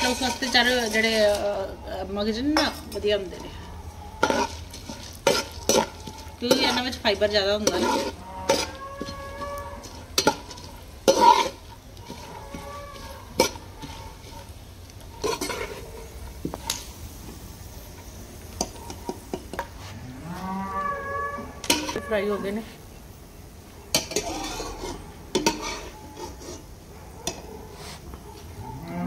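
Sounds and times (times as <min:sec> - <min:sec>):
metal spatula scraping pan: 0:00.0 - 0:16.8, 0:21.6 - 0:22.6, 0:23.9 - 0:28.0
seeds frying in hot fat: 0:00.0 - 0:29.0.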